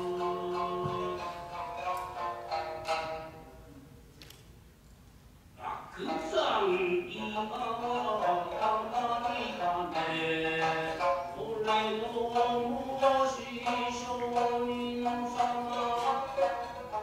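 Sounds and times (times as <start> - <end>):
person chanting long held notes: 0.0 - 1.4
music: 0.0 - 3.8, 5.9 - 17.0.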